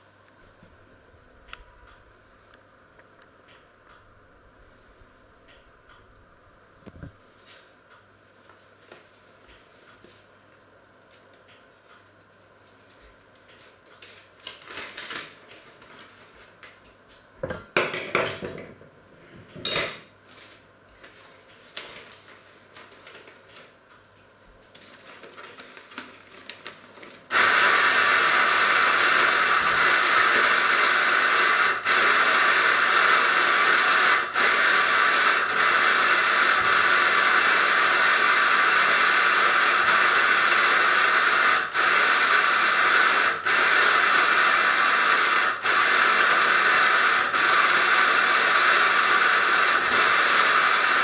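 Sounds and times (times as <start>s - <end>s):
loud steady hiss: 0.0s - 9.4s, 24.9s - 51.0s.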